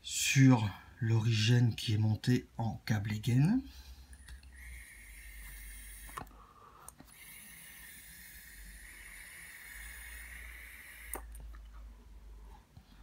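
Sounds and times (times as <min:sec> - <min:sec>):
vape click: 0:04.2 - 0:06.3, 0:07.1 - 0:11.5
airy hiss of vape draw: 0:04.6 - 0:06.3, 0:07.1 - 0:11.4.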